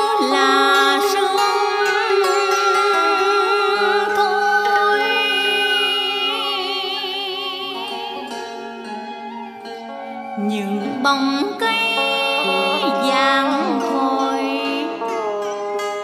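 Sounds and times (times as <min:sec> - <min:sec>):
woman chanting with vibrato: 0:00.0 - 0:08.6, 0:10.4 - 0:15.4
instrumental accompaniment: 0:00.0 - 0:16.0.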